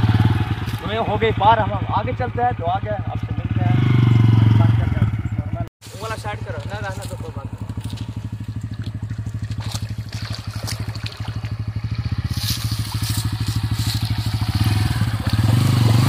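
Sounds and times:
tyres crunching over dirt and stones: 5.9 - 16.0
motorcycle engine putter: 6.3 - 16.0.

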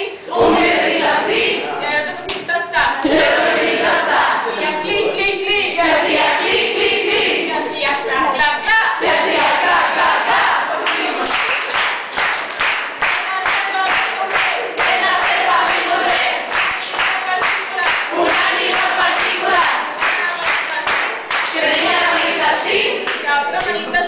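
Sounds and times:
group singing in unison: 0.0 - 24.0
rhythmic hand-clapping: 9.0 - 24.0.

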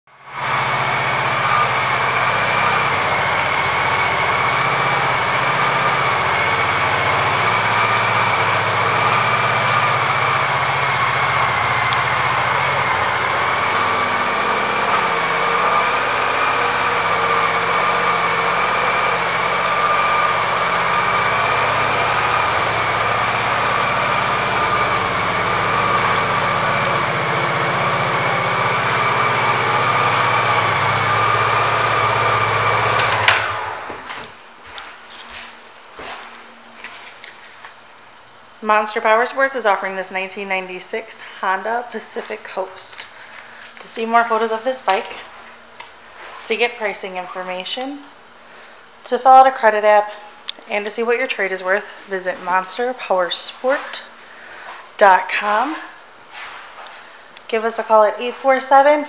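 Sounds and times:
motorcycle engine idling: 0.2 - 34.1.

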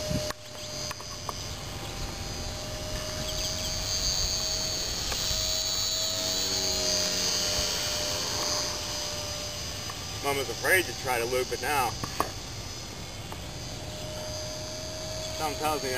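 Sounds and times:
wind rumble on microphone: 0.0 - 0.5
electric motor high whine: 0.0 - 15.9.

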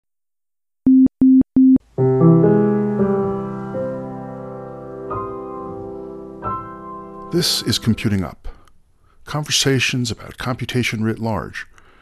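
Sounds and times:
keyboard chords: 0.9 - 8.1.

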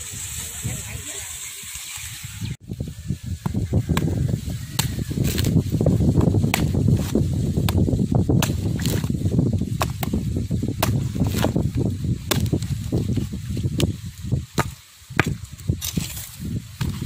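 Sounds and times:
blade chopping coconut husk: 3.4 - 17.0.

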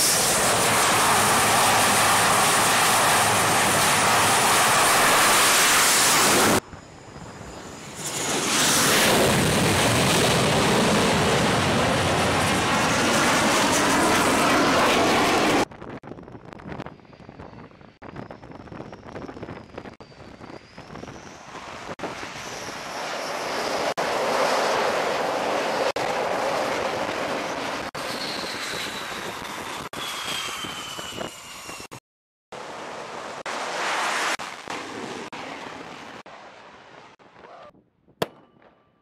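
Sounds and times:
fighter jet engines: 0.0 - 37.6
rifle shot: 38.2 - 38.8.

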